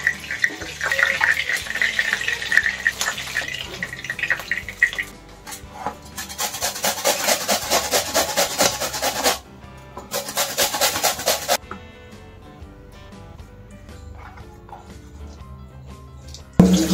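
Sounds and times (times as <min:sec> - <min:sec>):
fish frying in hot oil: 0:00.0 - 0:05.2, 0:16.4 - 0:16.9
onion rasping on a grater: 0:06.1 - 0:09.4, 0:10.1 - 0:11.6.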